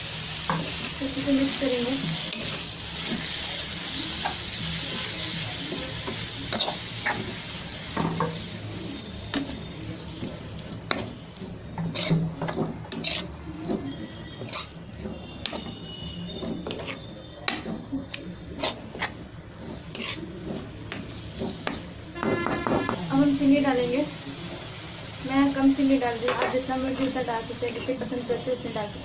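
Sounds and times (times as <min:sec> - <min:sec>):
vegetables sizzling in ghee: 0:00.0 - 0:29.0
metal spatula scraping and clicking: 0:02.2 - 0:03.4, 0:05.7 - 0:07.5, 0:10.2 - 0:21.9, 0:26.3 - 0:28.0.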